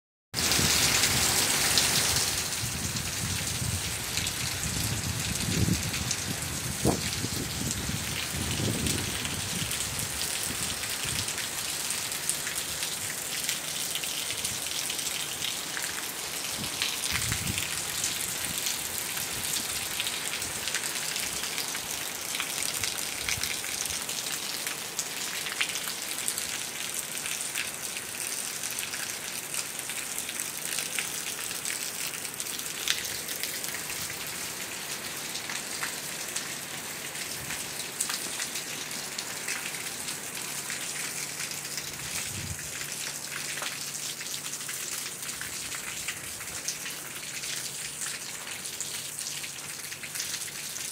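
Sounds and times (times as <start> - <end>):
heavy rain pouring: 0.4 - 50.9.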